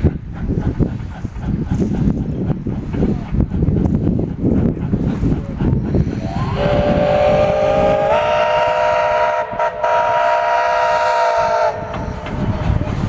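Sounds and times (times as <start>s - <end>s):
steam locomotive chime whistle: 6.3s - 12.2s.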